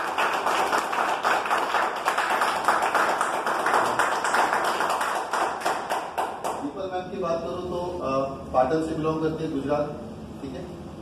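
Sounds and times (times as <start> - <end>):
audience applause: 0.0 - 6.6.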